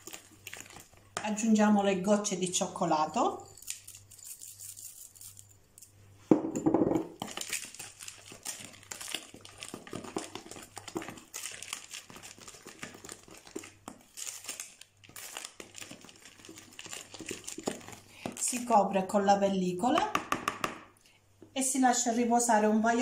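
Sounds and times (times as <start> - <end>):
spoon scraping a bowl: 3.4 - 5.9.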